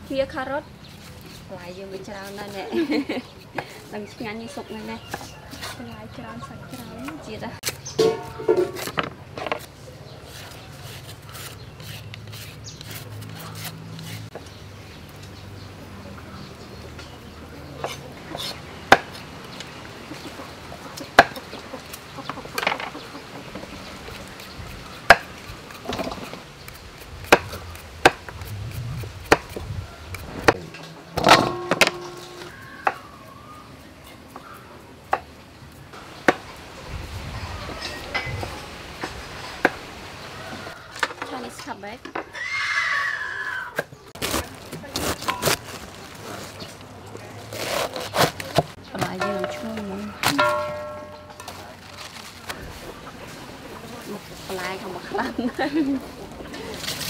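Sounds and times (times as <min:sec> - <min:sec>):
peeler scraping carrot: 0:00.8 - 0:03.5, 0:06.7 - 0:14.4, 0:23.7 - 0:30.6, 0:47.4 - 0:48.8
knife scraping onion skin: 0:09.6 - 0:14.4, 0:23.7 - 0:30.5, 0:47.4 - 0:48.8
knife chopping on wooden board: 0:27.2 - 0:28.5.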